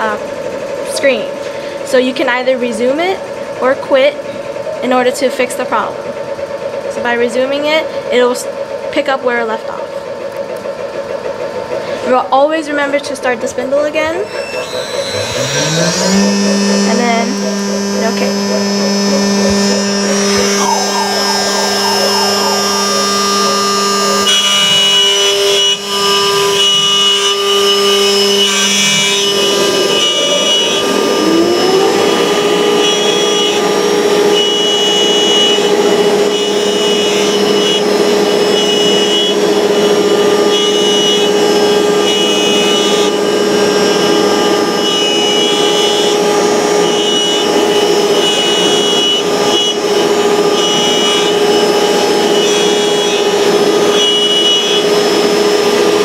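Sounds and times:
router spindle whining: 13.0s - 56.0s
bit cutting with rushing noise: 13.9s - 56.0s.

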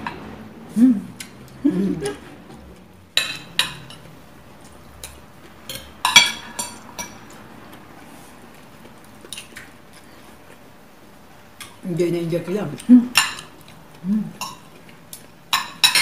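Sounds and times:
cutlery clinking on plates: 3.2s - 4.1s, 5.0s - 7.3s, 13.1s - 13.6s, 15.5s - 16.0s.

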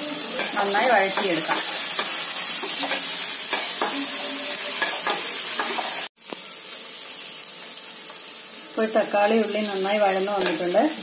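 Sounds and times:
vegetables sizzling in hot oil: 0.0s - 11.0s
spoon scraping a metal pan: 0.3s - 6.1s.

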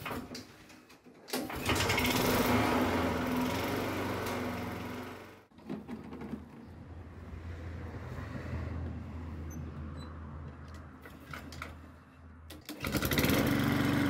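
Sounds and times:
lawn mower engine running: 1.4s - 6.6s, 12.6s - 14.0s.

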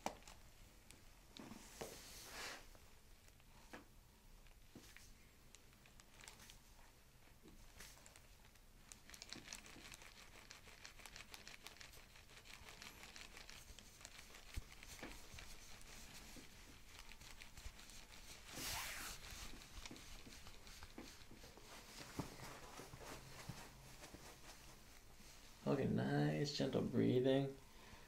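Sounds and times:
brushing rustle: 1.4s - 2.7s, 8.9s - 25.8s
clothing and paper rustling: 4.4s - 25.8s.

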